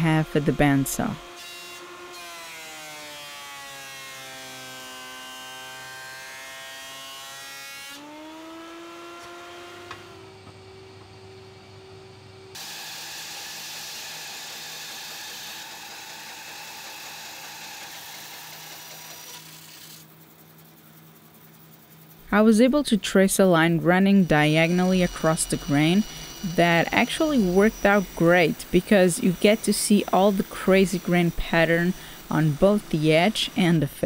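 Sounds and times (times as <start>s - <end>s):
bandsaw humming and hissing: 0.0s - 11.4s, 12.5s - 20.2s, 23.4s - 34.0s
jointer motor whine: 7.9s - 20.1s, 23.8s - 34.0s.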